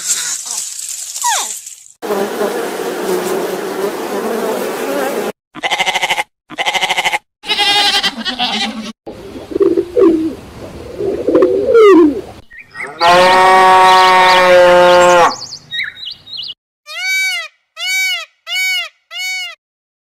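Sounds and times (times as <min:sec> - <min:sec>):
bees buzzing: 0:02.0 - 0:05.4
quavering bleat-like calls: 0:05.6 - 0:08.9, 0:12.9 - 0:15.3
dove cooing: 0:09.1 - 0:12.4
cow mooing: 0:13.0 - 0:15.4.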